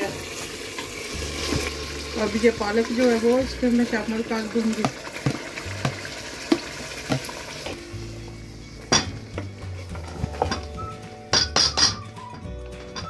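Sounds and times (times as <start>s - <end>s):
meat sizzling: 0.0s - 11.5s
spoon knocking against metal pot: 4.8s - 7.3s, 11.3s - 12.0s.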